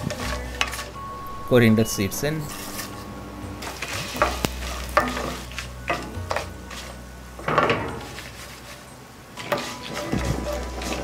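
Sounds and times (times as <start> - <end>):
light sizzle of frying: 0.0 - 11.0
spatula scraping a pan: 2.4 - 2.9, 7.9 - 11.0.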